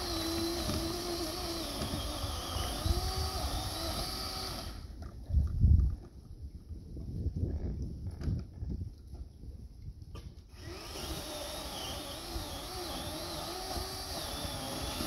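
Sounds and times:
chainsaw running: 0.0s - 4.9s, 10.5s - 15.0s.

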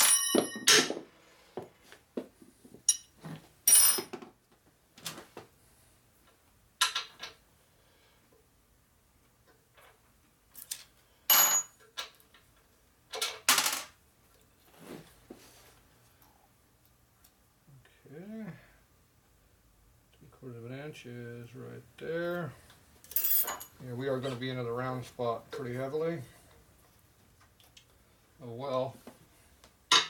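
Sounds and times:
metal tools clinking on workbench: 0.0s - 1.0s, 2.8s - 4.3s, 10.6s - 12.0s, 23.1s - 23.8s.

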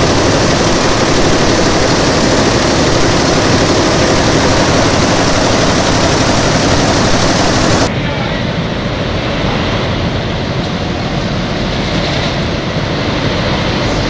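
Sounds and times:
embroidery machine rattling: 0.0s - 7.9s.

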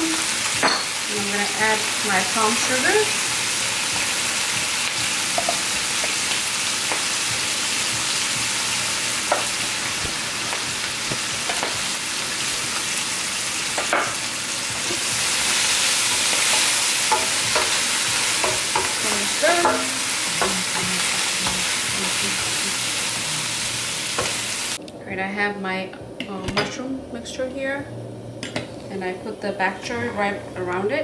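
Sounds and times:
vegetables sizzling in a wok: 0.0s - 24.8s.

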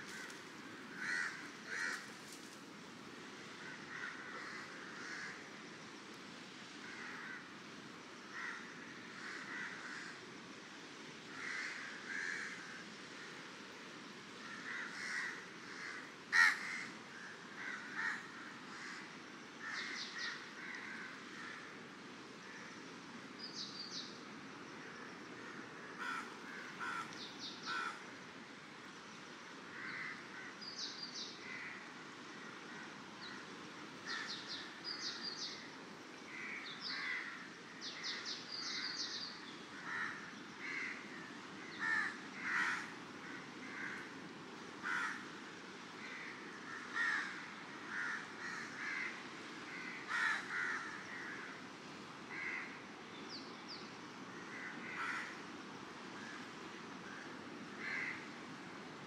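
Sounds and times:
birds calling: 0.0s - 2.5s, 25.4s - 28.0s, 34.0s - 35.7s.

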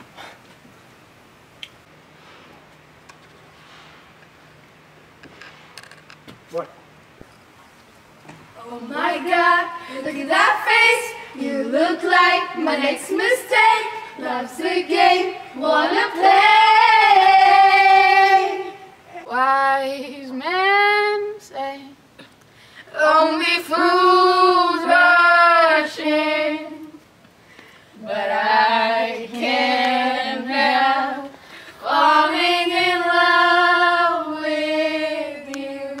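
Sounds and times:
young women singing a cappella: 8.5s - 27.2s, 27.8s - 36.0s.

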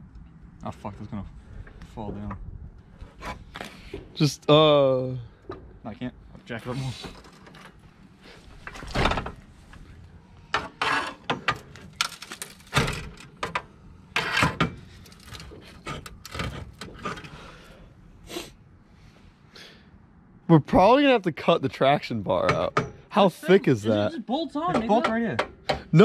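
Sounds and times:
metal tools clunking and knocking: 22.4s - 23.1s, 24.6s - 25.9s.

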